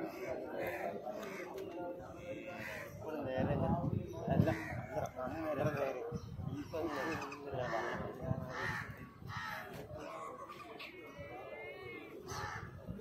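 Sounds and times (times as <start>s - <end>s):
crows cawing: 0.0s - 1.6s, 2.4s - 3.1s, 4.4s - 5.2s, 6.8s - 10.3s, 12.2s - 12.8s.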